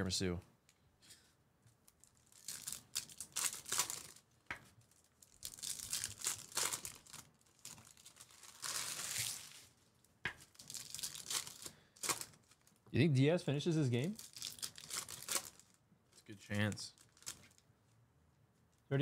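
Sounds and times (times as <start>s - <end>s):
foil wrappers crinkling and tearing: 1.9s - 12.8s, 14.0s - 15.8s, 16.5s - 17.6s.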